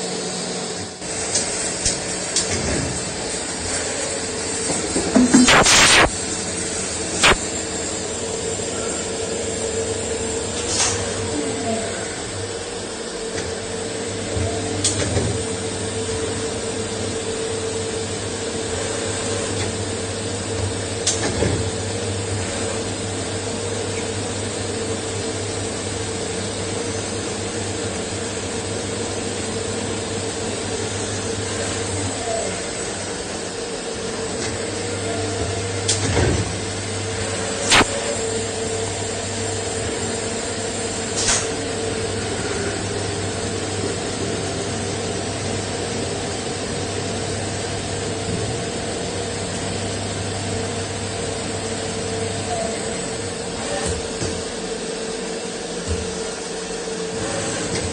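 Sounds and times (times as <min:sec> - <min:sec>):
lathe mechanical whir: 0:00.0 - 0:57.9.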